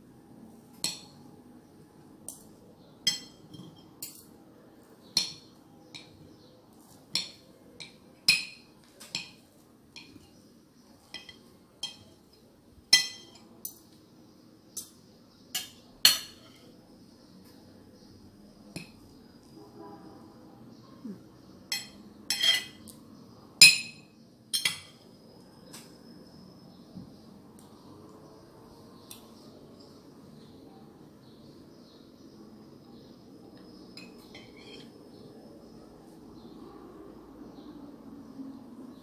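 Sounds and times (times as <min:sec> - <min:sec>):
knife and fork clinking on plate: 0:12.9 - 0:13.9, 0:21.7 - 0:22.9, 0:34.0 - 0:35.0.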